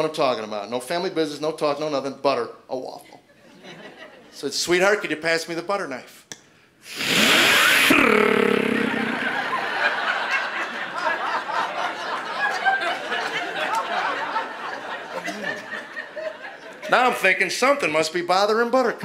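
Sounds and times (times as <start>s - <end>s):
audience laughing: 3.4s - 4.4s, 8.5s - 17.2s
mouth whoosh into microphone: 6.8s - 9.8s.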